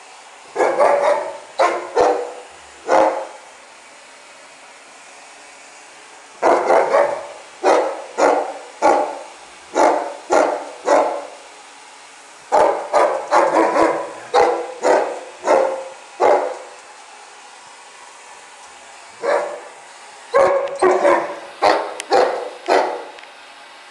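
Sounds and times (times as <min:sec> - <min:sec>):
dog barking: 0:00.5 - 0:03.4, 0:06.4 - 0:11.4, 0:12.5 - 0:16.7, 0:19.2 - 0:19.7, 0:20.4 - 0:23.2.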